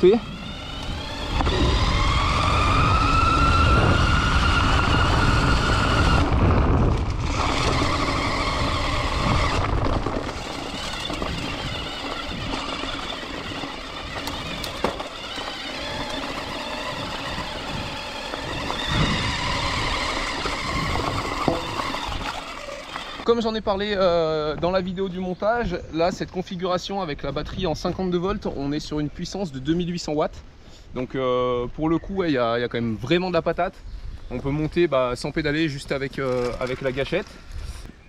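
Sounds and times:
electric bike motor whining: 0.0s - 23.3s
tyres rumbling over dirt: 0.0s - 23.4s, 34.4s - 37.6s
wind noise: 0.0s - 28.8s.

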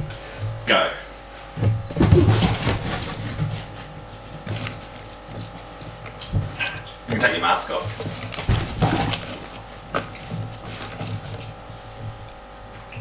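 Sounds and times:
hands rustling crinkly material: 2.3s - 11.9s.

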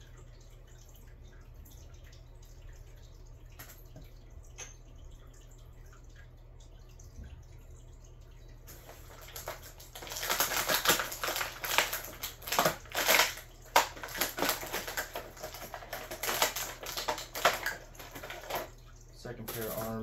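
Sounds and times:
plastic and cardboard crinkling: 8.7s - 18.7s.

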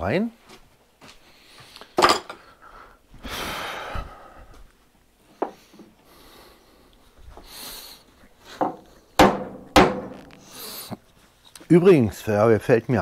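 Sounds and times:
sharp knock on workbench: 9.2s - 10.2s.

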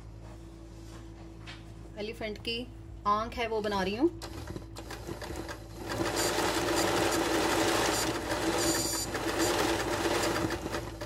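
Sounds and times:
sewing machine stitching: 4.2s - 11.0s.

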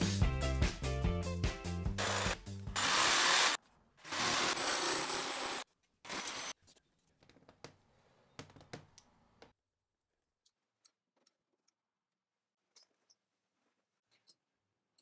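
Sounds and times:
jigsaw sawing through wood: 2.0s - 6.5s.

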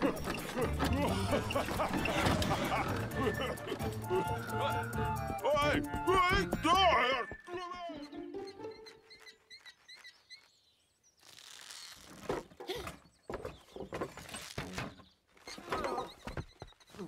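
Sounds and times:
small bird chirping: 7.2s - 17.0s
rustling and scraping: 11.2s - 12.7s.

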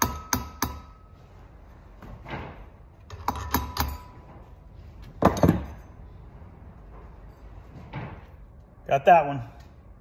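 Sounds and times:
hammer tapping metal punch: 0.0s - 1.0s, 3.1s - 4.2s.

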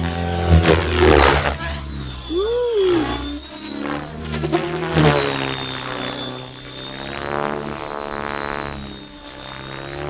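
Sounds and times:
helicopter rotor and motor whine: 0.0s - 10.0s
rotor blade whoosh: 0.0s - 10.0s.

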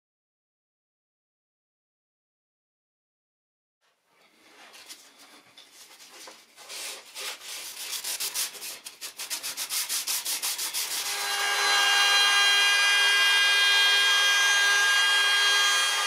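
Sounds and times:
sandpaper sanding wood: 6.6s - 11.2s
router motor whine: 11.0s - 16.0s.

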